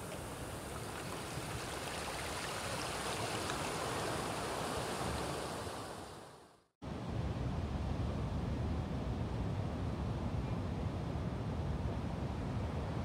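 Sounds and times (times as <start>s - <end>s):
surf rushing over sand: 0.0s - 6.5s.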